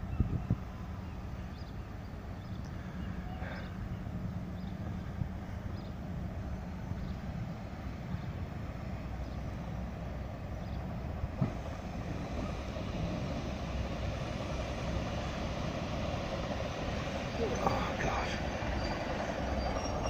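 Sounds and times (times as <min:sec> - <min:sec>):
diesel train rumble: 0:00.0 - 0:20.0
train wheel noise: 0:00.0 - 0:20.0.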